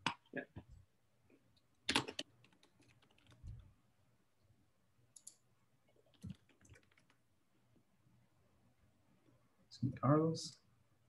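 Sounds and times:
keyboard typing: 0:01.9 - 0:03.6, 0:05.1 - 0:05.4, 0:06.0 - 0:07.2.

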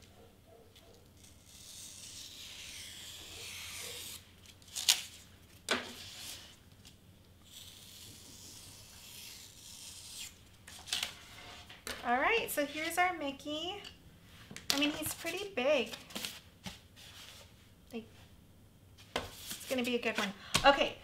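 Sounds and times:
craft knife cutting foam board: 0:01.2 - 0:05.1, 0:07.4 - 0:10.9.

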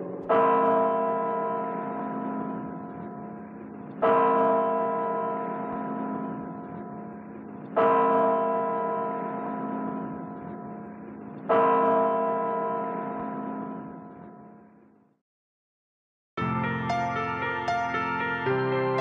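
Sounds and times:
deep bell ringing: 0:00.0 - 0:14.6.

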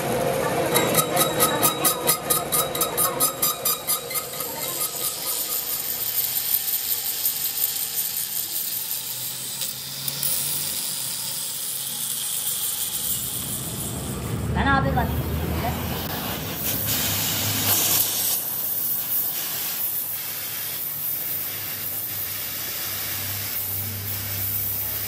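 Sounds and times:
lathe cutting steel: 0:00.0 - 0:20.0
angle grinder grinding metal: 0:00.5 - 0:14.4.

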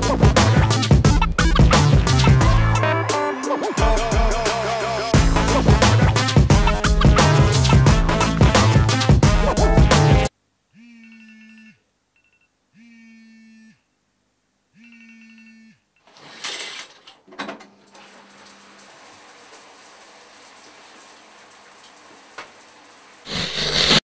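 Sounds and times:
phone timer alarm tones: 0:10.8 - 0:13.8, 0:14.8 - 0:15.8
shower curtain pulled aside: 0:16.0 - 0:17.1, 0:23.3 - 0:24.0
shower water hissing: 0:18.1 - 0:24.0.

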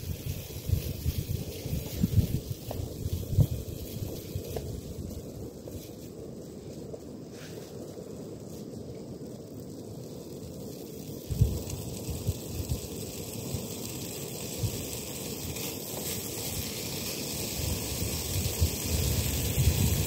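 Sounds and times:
wind buffeting microphone: 0:00.0 - 0:08.5, 0:11.2 - 0:13.1, 0:15.9 - 0:20.0.

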